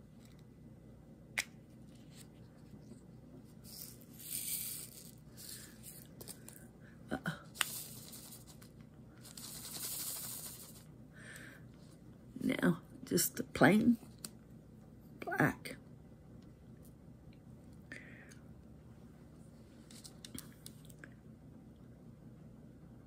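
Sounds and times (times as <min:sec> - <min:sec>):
plastic beads poured into tray: 0:03.7 - 0:06.4, 0:09.2 - 0:10.8.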